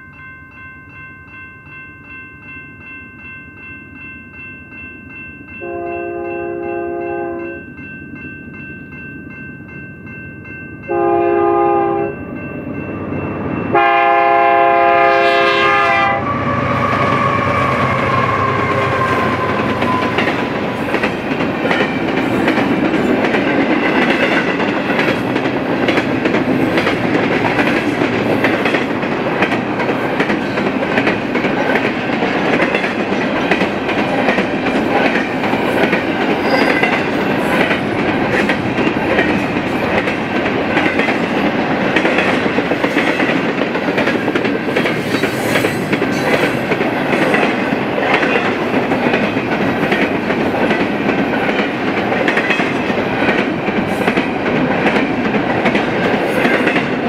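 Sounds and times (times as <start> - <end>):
train wheels rumbling on rail: 11.8 - 57.0.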